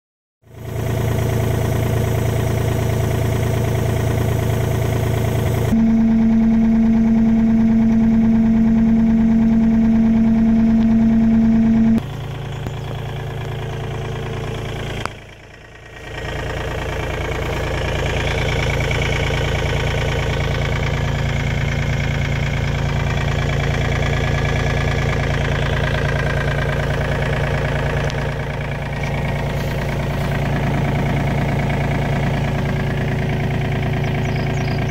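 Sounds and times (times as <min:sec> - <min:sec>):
diesel engine idling: 0:00.4 - 0:34.9
strong steady hum: 0:01.8 - 0:12.7.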